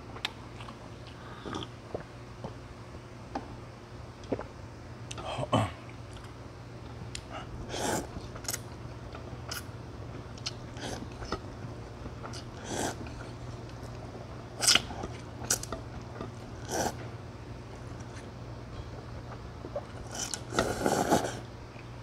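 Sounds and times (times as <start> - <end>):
person slurping noodles: 7.7 - 8.2, 12.5 - 13.2, 16.5 - 17.0, 20.0 - 21.5.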